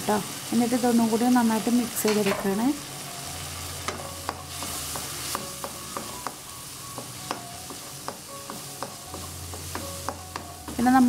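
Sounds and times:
vegetables sizzling in oil: 0:00.0 - 0:11.0
wooden spatula tapping pan: 0:03.9 - 0:11.0.

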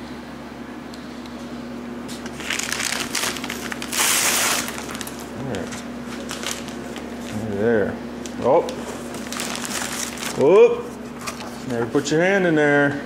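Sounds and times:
steady low hum: 0:00.0 - 0:13.0
cardboard crinkling and scraping: 0:02.1 - 0:07.5, 0:08.6 - 0:11.8.

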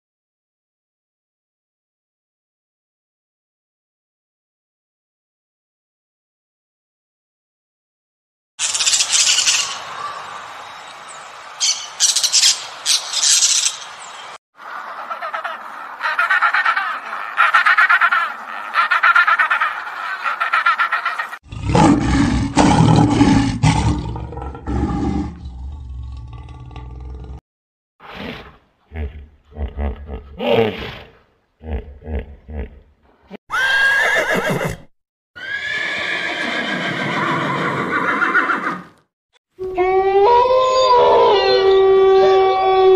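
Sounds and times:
parrot squawking: 0:14.7 - 0:21.4
horses whinnying: 0:33.5 - 0:38.9.

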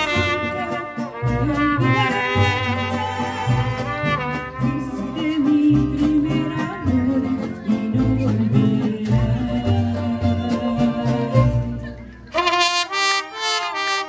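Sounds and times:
mariachi band playing: 0:00.0 - 0:14.0
woman singing into microphone: 0:04.7 - 0:11.7.

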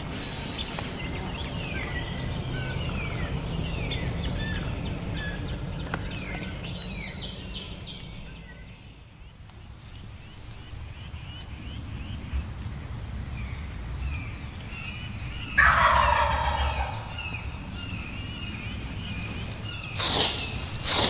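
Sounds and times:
songbirds chirping faintly: 0:00.0 - 0:21.0
turkey gobbling: 0:15.5 - 0:17.5
rustling: 0:20.0 - 0:21.0.

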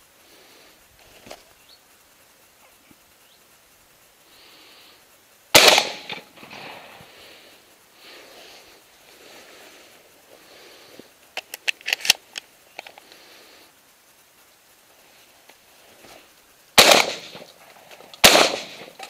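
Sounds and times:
shotgun blast: 0:05.5 - 0:07.0, 0:16.8 - 0:17.5, 0:18.2 - 0:19.0
sharp mechanical clicks: 0:11.3 - 0:13.1.

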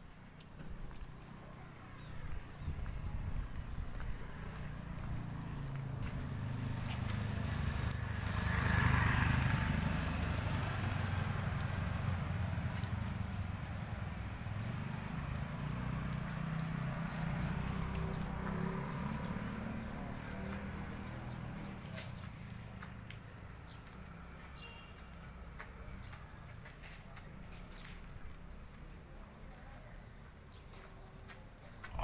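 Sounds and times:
low street rumble: 0:00.0 - 0:32.0
motor scooter passing: 0:00.9 - 0:24.7.

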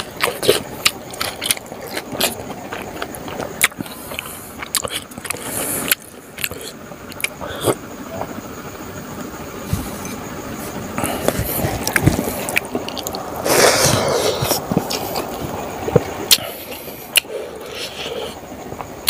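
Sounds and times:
chewing and lip-smacking: 0:00.0 - 0:08.3.

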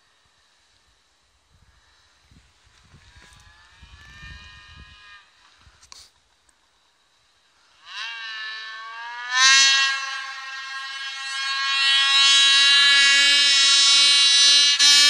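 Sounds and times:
snowmobile engine at high revs: 0:02.7 - 0:06.1, 0:07.6 - 0:15.0.

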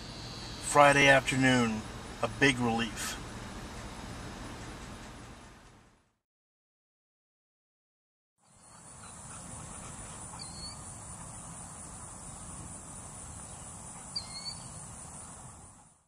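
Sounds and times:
high-pitched insect drone: 0:00.0 - 0:02.9
bird chirping: 0:08.4 - 0:15.4.

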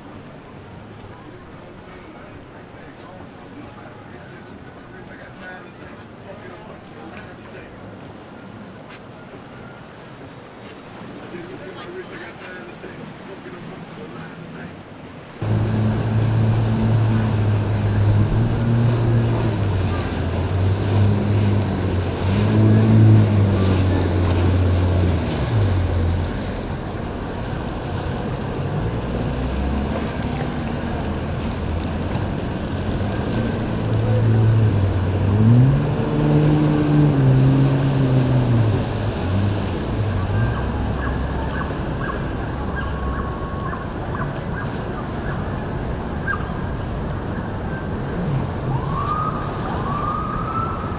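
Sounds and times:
water spray and wind: 0:00.0 - 0:50.9
watercraft engine revving: 0:15.4 - 0:46.3, 0:46.9 - 0:50.9.

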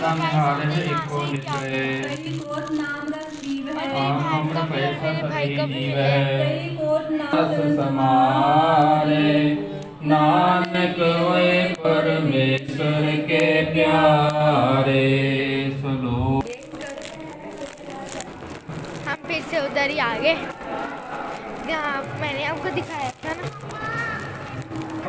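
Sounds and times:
man singing a hymn: 0:07.2 - 0:16.4.

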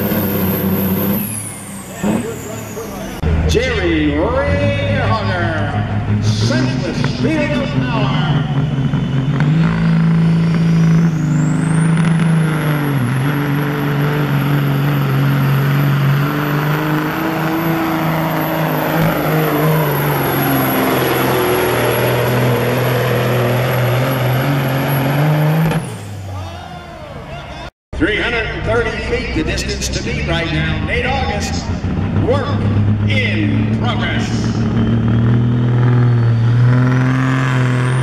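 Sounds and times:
turbocharger whine: 0:00.0 - 0:26.4, 0:28.0 - 0:38.0
diesel truck engine under load: 0:00.0 - 0:38.0.

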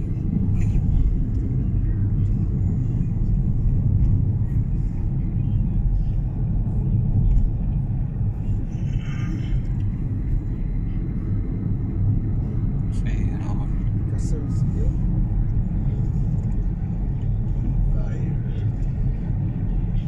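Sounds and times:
car engine and road noise: 0:00.0 - 0:20.0.

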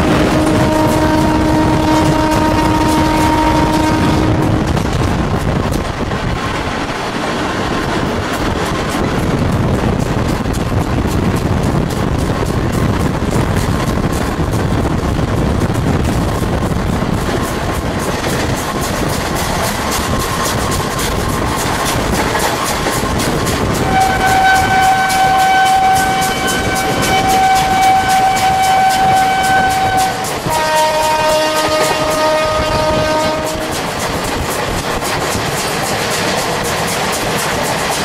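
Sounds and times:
locomotive horn: 0:00.0 - 0:04.8, 0:23.8 - 0:34.0
lower-pitched horn blast: 0:00.0 - 0:04.9, 0:23.8 - 0:34.0
train wheels clattering: 0:00.0 - 0:38.0.

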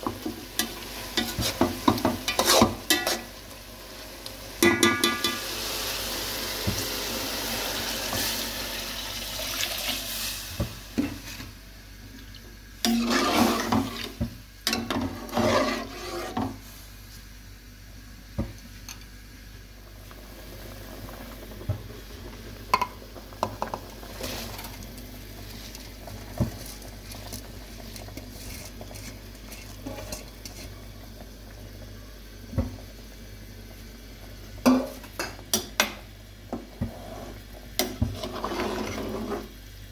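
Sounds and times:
rushing hiss in a pan: 0:00.0 - 0:12.0, 0:12.8 - 0:17.5, 0:19.9 - 0:39.9
scraping in a pan: 0:00.6 - 0:03.3, 0:12.8 - 0:16.9, 0:23.6 - 0:24.8, 0:25.4 - 0:30.8, 0:36.6 - 0:39.6
utensil clacking against a pan: 0:04.6 - 0:05.4.

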